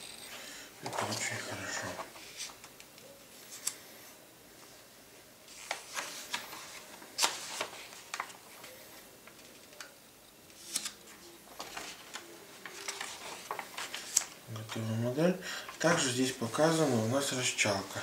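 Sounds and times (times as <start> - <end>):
paper pages rustling: 0.8 - 2.7, 5.5 - 9.8, 10.5 - 15.0.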